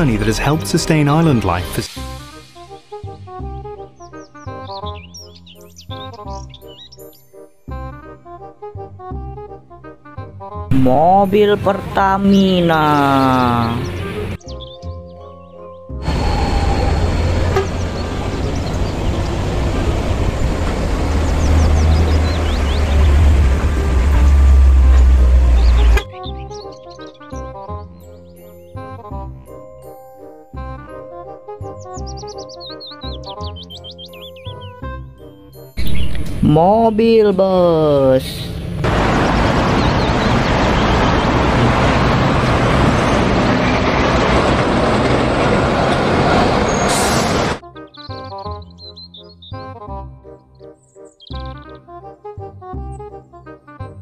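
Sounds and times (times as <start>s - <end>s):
diesel truck engine rumbling: 10.7s - 14.4s, 16.0s - 26.5s, 35.8s - 47.6s
road traffic: 10.7s - 14.4s, 16.0s - 26.4s, 35.8s - 47.6s.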